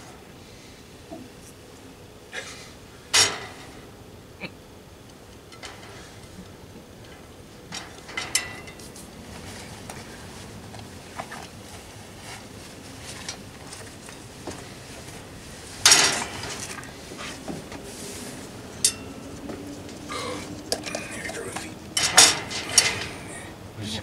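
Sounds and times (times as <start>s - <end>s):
cutlery and plates clinking: 18.8s - 19.2s, 20.2s - 23.4s.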